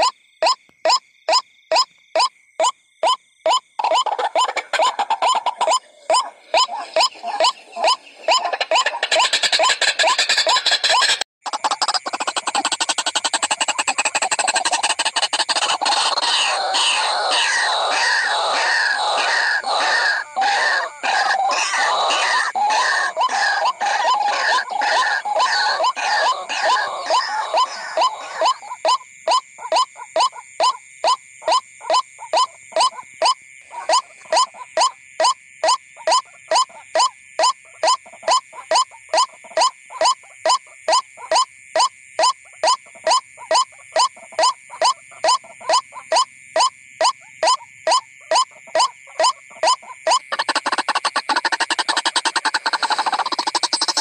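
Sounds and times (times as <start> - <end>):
bird calling: 3.0 - 30.8, 31.4 - 35.0, 47.4 - 54.0.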